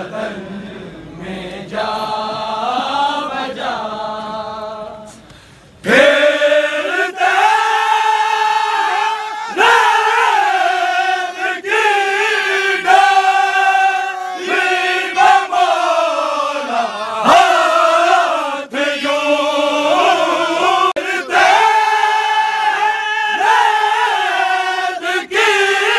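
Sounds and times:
men chanting a lament: 0:05.8 - 0:25.9.

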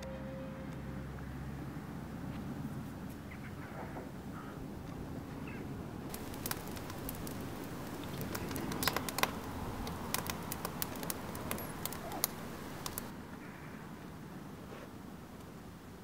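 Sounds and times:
low rumble of fire: 0:01.0 - 0:13.3
grass and twigs crackling in fire: 0:06.1 - 0:13.2.

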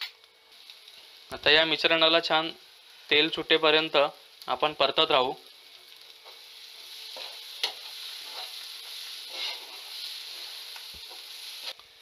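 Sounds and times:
paste sizzling in oil: 0:00.5 - 0:12.0
steel spoon scraping a pan: 0:06.2 - 0:11.8.

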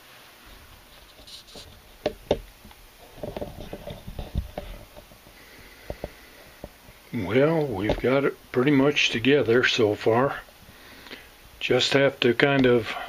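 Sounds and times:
light knocks and rustles: 0:00.9 - 0:07.0.

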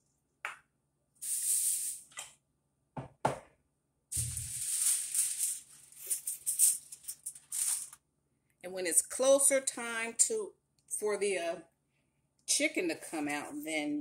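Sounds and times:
wrapping material rustling: 0:04.2 - 0:08.0.

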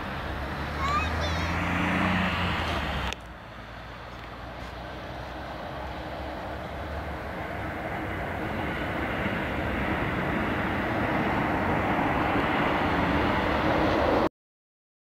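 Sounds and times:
jet engine roar: 0:00.0 - 0:14.3.

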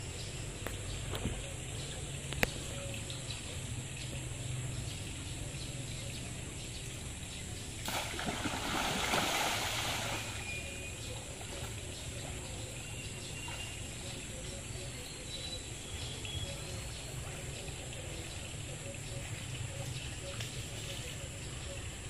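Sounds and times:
splashing in shallow water: 0:07.7 - 0:12.4.

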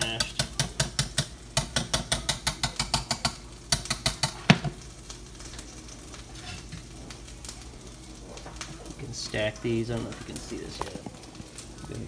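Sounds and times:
utensil knocking on saucepan: 0:00.0 - 0:04.8
utensil scraping a saucepan: 0:06.4 - 0:06.8.

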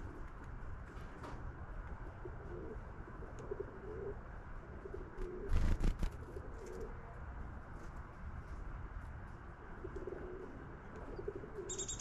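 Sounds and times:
pigeons cooing: 0:02.2 - 0:05.6, 0:09.8 - 0:12.0.

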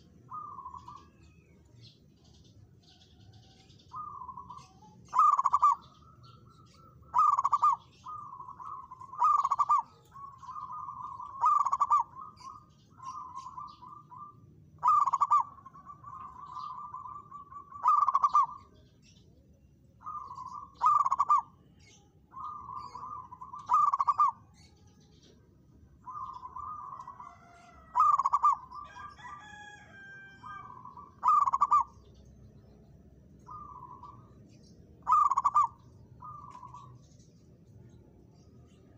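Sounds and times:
dove cooing: 0:00.0 - 0:01.3, 0:03.2 - 0:18.9, 0:20.0 - 0:24.8, 0:26.0 - 0:32.1, 0:33.4 - 0:34.3, 0:35.0 - 0:37.0.

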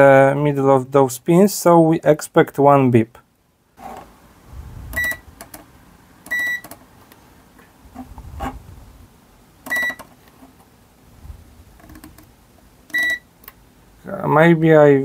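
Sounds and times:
multimeter continuity beeps: 0:05.0 - 0:05.2, 0:06.3 - 0:06.8, 0:09.7 - 0:10.1, 0:12.9 - 0:13.3.

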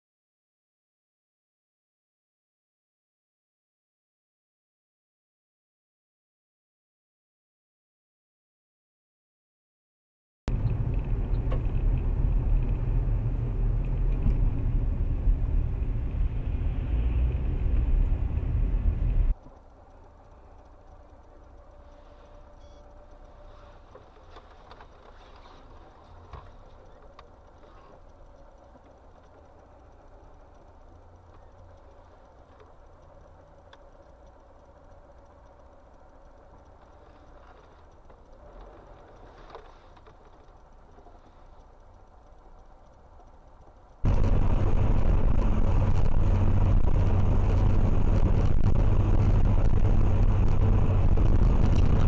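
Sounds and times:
light clicks and ticks: 0:10.5 - 0:14.6, 0:19.0 - 0:52.0
car driving on highway: 0:10.5 - 0:52.0
road noise: 0:10.5 - 0:52.0
faint steady tone: 0:18.6 - 0:51.6
car rolling over snow: 0:36.8 - 0:41.6, 0:44.0 - 0:52.0.

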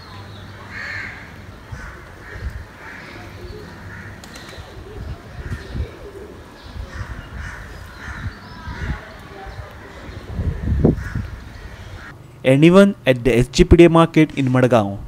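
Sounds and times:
crows cawing: 0:00.6 - 0:04.7, 0:05.3 - 0:12.2
pigeons cooing: 0:00.6 - 0:12.1
low rumble on microphone: 0:04.7 - 0:12.1.

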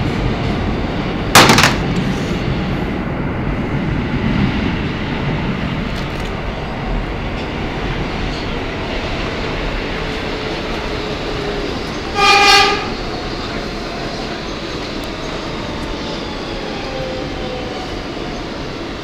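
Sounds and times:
subway wheels and motors rumbling: 0:00.0 - 0:19.0
short loud train horn: 0:12.1 - 0:12.9.

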